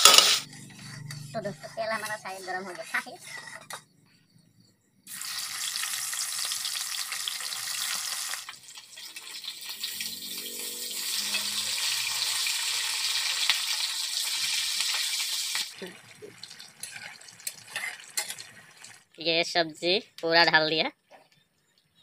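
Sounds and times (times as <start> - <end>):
fish sizzling in hot oil: 5.1 - 19.1.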